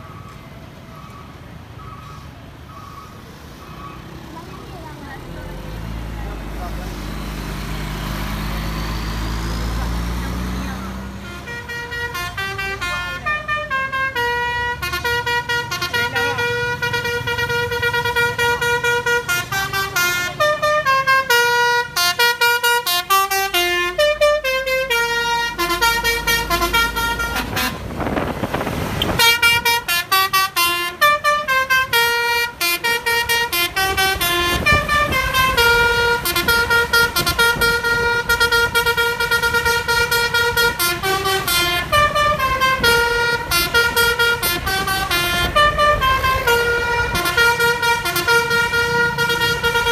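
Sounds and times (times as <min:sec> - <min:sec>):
musical bus horn melody: 0:10.8 - 0:49.9.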